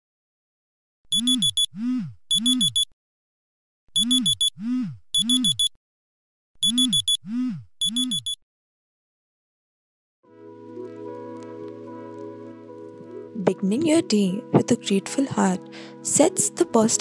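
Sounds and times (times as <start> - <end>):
smartphone alarm beeping: 1.1 - 1.7, 2.3 - 2.9, 4.0 - 4.5, 5.2 - 5.7, 6.6 - 7.2, 7.8 - 8.4.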